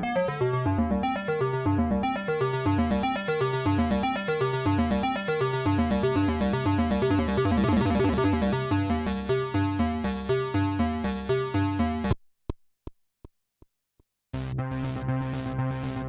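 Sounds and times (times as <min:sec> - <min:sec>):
bell-like synthesizer arpeggio: 0:01.0 - 0:11.9.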